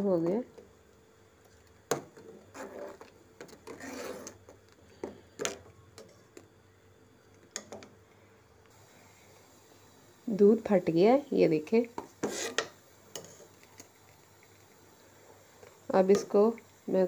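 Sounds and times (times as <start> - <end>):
metal spoon scraping pot: 2.2 - 4.5, 12.2 - 13.4.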